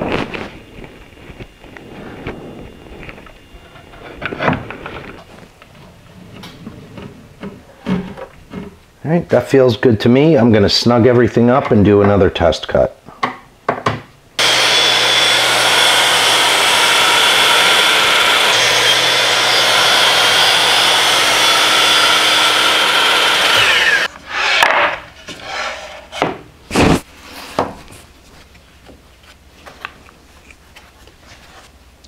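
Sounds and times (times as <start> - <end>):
miter saw cutting with high whine: 14.4 - 24.1
saw blade spinning down: 14.4 - 24.6.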